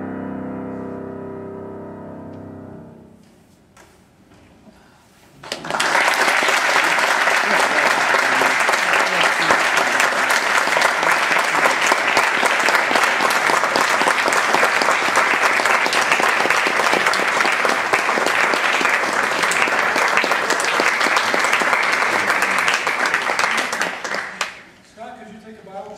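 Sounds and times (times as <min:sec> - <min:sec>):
audience applauding: 0:05.4 - 0:24.8.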